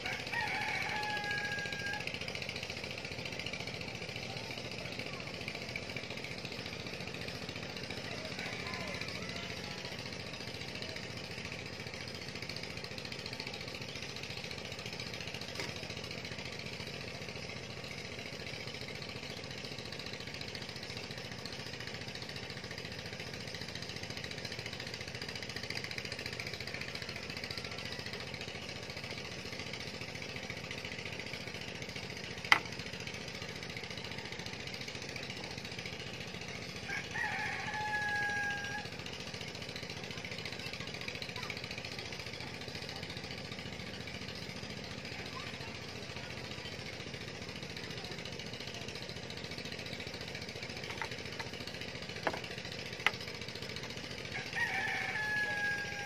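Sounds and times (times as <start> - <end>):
rooster crowing: 0.0 - 2.1, 36.9 - 38.9, 54.3 - 56.0.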